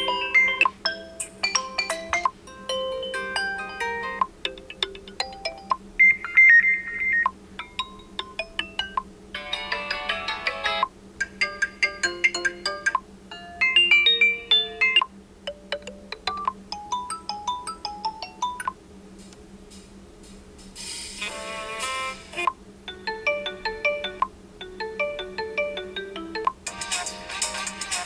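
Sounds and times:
short ringtone melodies: 0:00.0 - 0:07.0, 0:22.9 - 0:28.0.

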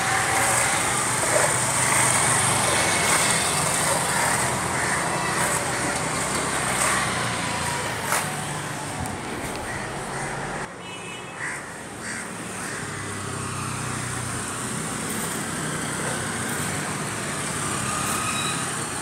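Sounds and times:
motorbike engine passing: 0:00.0 - 0:10.7
traffic hum: 0:00.0 - 0:19.0.

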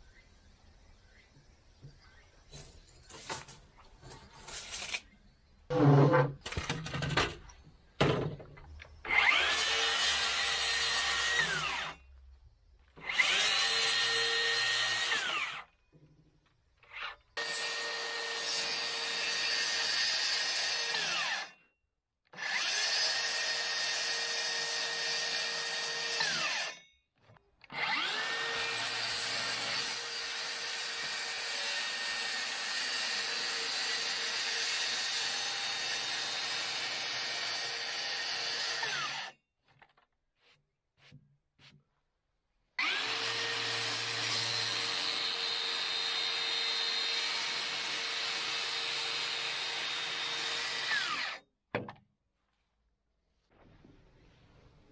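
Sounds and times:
circular saw cutting plywood: 0:09.1 - 0:12.0, 0:27.7 - 0:39.4, 0:42.8 - 0:51.4.

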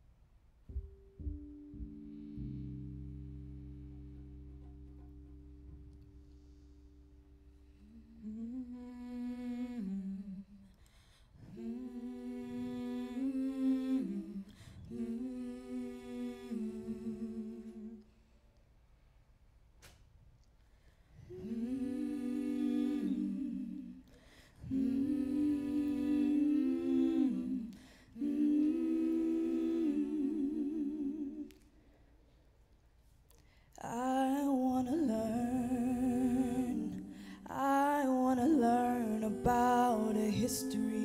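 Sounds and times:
voices humming in harmony: 0:21.3 - 0:31.5, 0:34.6 - 0:41.0.

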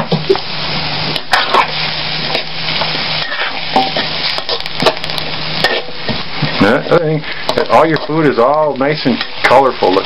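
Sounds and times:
vegetables sizzling in a wok: 0:00.0 - 0:10.0
metal spatula scraping a wok: 0:01.2 - 0:05.0, 0:05.6 - 0:06.0.

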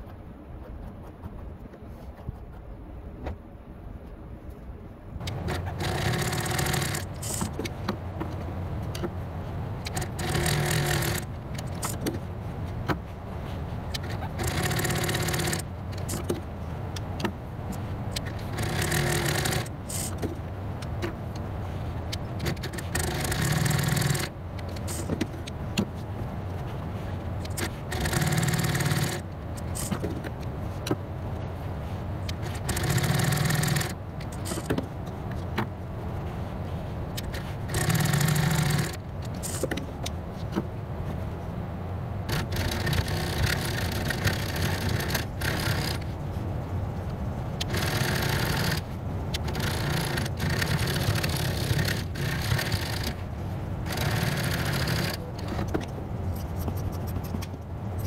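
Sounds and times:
sewing machine stitching: 0:05.3 - 0:07.5, 0:09.8 - 0:11.9, 0:14.0 - 0:16.3, 0:18.2 - 0:20.2, 0:22.4 - 0:24.3, 0:27.4 - 0:30.0, 0:32.4 - 0:34.7, 0:37.2 - 0:39.6, 0:42.3 - 0:46.0, 0:47.6 - 0:48.8, 0:49.4 - 0:53.2, 0:53.8 - 0:55.8.

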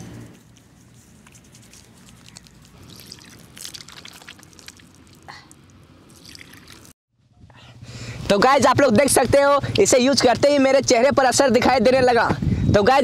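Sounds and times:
water splashing on face: 0:02.1 - 0:07.0
water dripping: 0:02.2 - 0:06.9.

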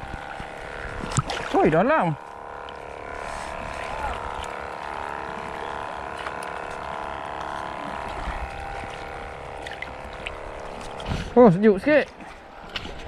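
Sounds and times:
steady mechanical hum: 0:00.0 - 0:13.0
small splashes: 0:00.1 - 0:01.7.

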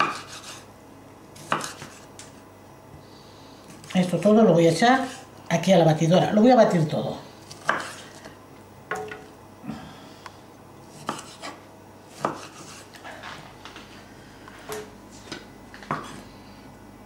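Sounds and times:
knife slicing tomatoes: 0:00.0 - 0:00.7, 0:01.4 - 0:02.4, 0:07.5 - 0:08.3, 0:10.8 - 0:13.1.

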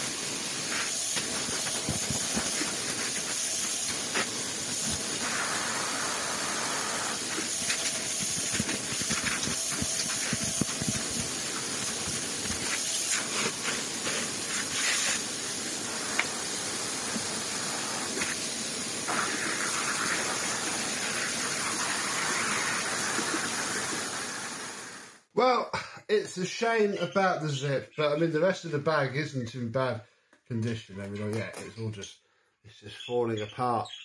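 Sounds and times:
steady rushing hiss: 0:00.0 - 0:25.3.

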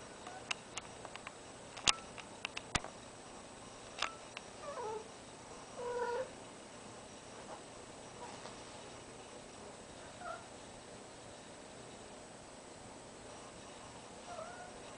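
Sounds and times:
sharp clicks: 0:00.5 - 0:03.0.

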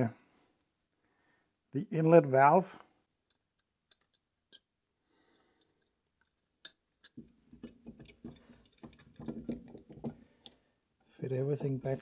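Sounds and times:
small metal parts clicking: 0:03.2 - 0:04.7.

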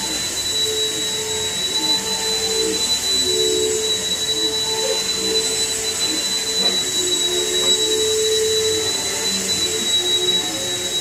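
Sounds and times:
high-pitched whine: 0:00.0 - 0:11.0
machine whirring hiss: 0:00.0 - 0:11.0.

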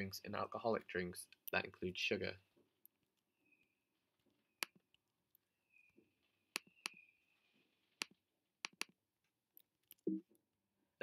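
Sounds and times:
sharp clicks: 0:06.5 - 0:07.0, 0:08.0 - 0:09.0.

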